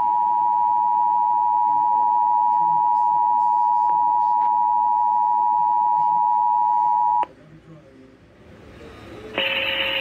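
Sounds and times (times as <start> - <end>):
two-tone alarm signal: 0.0 - 7.2, 9.4 - 10.0.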